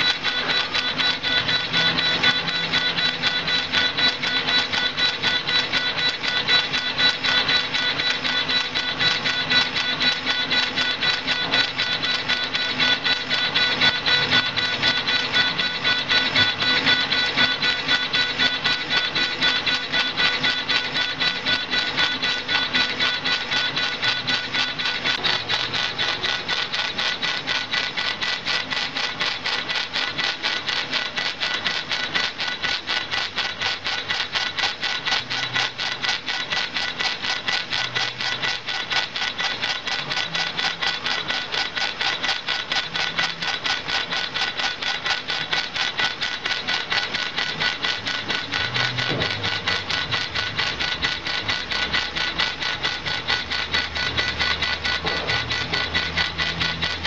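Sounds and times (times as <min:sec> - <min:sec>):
high motor whine: 0:00.0 - 0:57.0
laser engraver ticking: 0:00.0 - 0:57.0.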